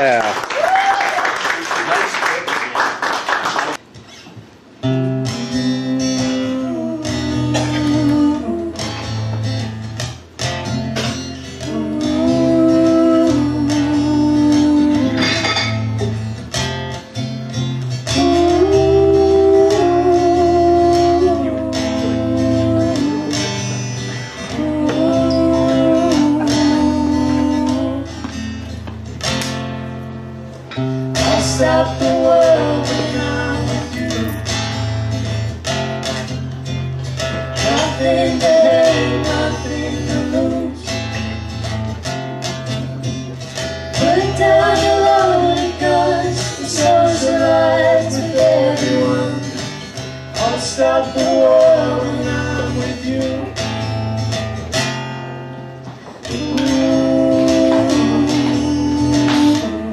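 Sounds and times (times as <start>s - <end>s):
acoustic guitar strumming: 3.8s - 59.9s
person singing: 5.3s - 9.2s, 11.6s - 15.4s, 18.1s - 28.3s, 31.2s - 34.5s, 37.6s - 41.0s, 44.0s - 49.7s, 50.4s - 53.8s, 56.2s - 59.9s.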